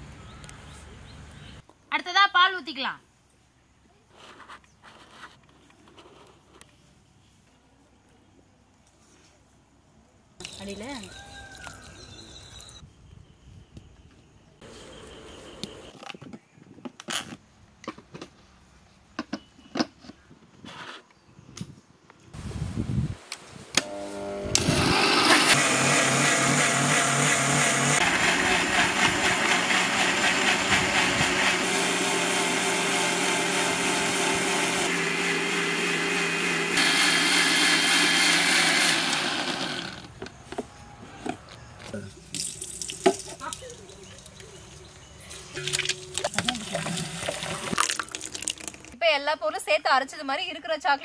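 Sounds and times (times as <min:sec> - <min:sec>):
mixer grinder motors running: 0:23.8 - 0:40.2.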